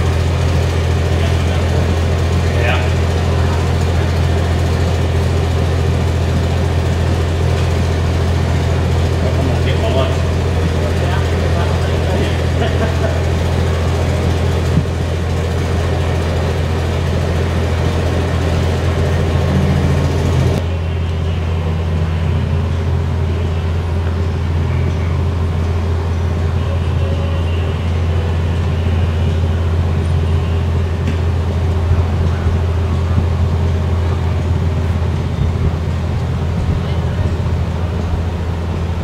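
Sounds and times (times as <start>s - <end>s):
engine humming: 0.0s - 39.0s
faint voices: 0.8s - 6.7s, 8.5s - 14.8s, 26.4s - 31.0s, 35.8s - 38.9s.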